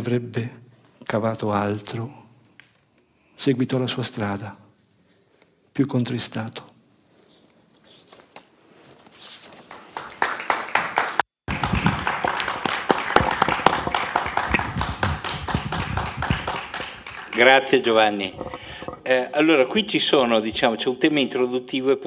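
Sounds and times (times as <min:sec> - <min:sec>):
audience applause: 0:09.9 - 0:17.8.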